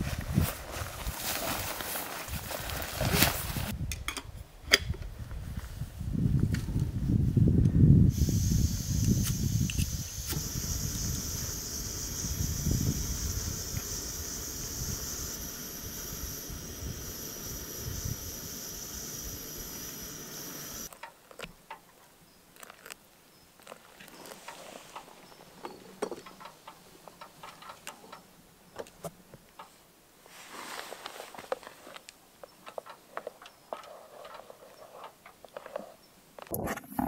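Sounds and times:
steady hiss with high tones: 8.1s - 20.9s.

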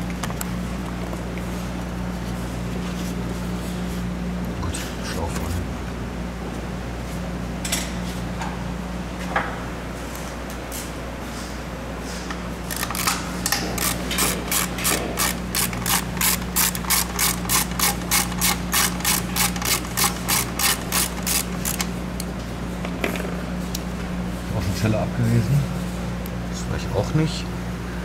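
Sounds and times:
ratchet wrench clicking: 12.7s - 21.9s.

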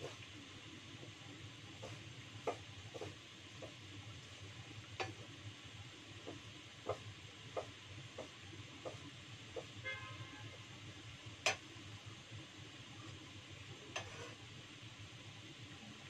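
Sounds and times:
faint sizzle: 0.0s - 16.0s
utensil clinking and scraping pan: 13.9s - 14.4s.

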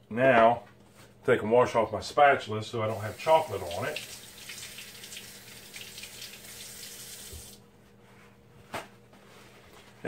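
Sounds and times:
tap running into sink: 4.0s - 7.6s.

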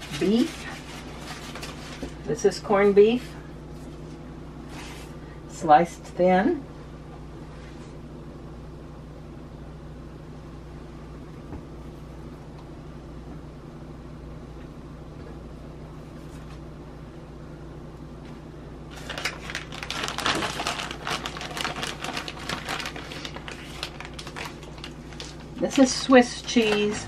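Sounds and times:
plastic bag crinkling: 0.0s - 2.3s, 18.9s - 27.0s
low room hum: 0.0s - 27.0s.

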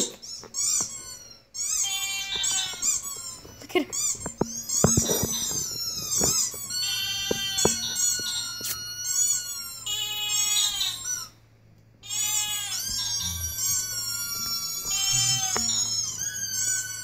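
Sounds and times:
high-pitched animal cries: 0.0s - 11.4s, 12.0s - 17.0s.

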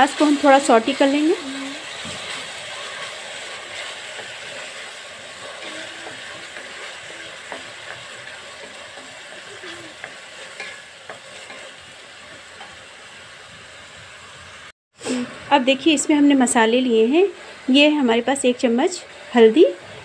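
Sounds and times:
wooden spatula stirring in pan: 0.0s - 12.9s
onion sizzling in hot oil: 0.0s - 20.0s.

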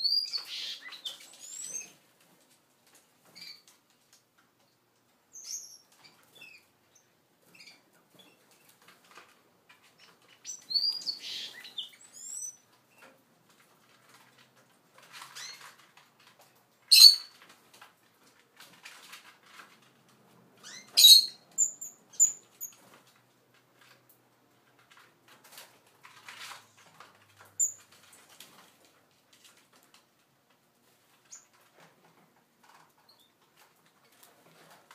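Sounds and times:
finches chirping: 0.1s - 1.9s, 10.3s - 12.6s
birds pecking and clicking: 0.1s - 34.9s.

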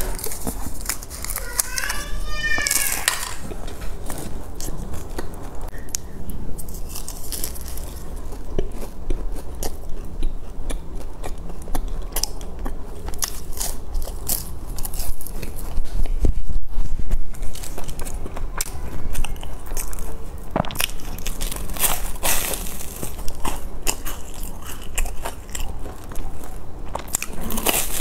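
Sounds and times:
person chewing crisp pastry: 0.0s - 28.0s.

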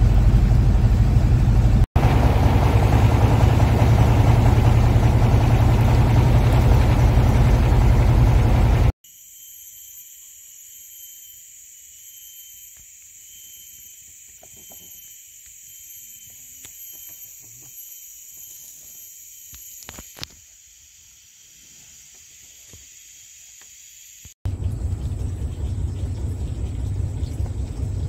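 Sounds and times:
insects droning: 8.4s - 28.0s.

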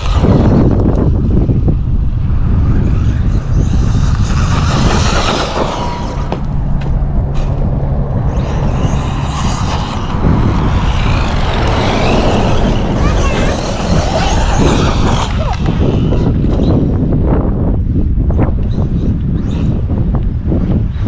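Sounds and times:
rc truck motor running hard: 0.0s - 6.5s, 8.2s - 17.1s
low rumble of wind on microphone: 0.0s - 21.0s.

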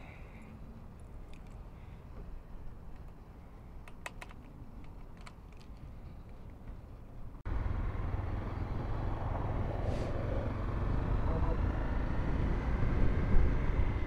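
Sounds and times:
motorcycle engine: 7.5s - 14.0s
wind noise: 12.7s - 14.0s.

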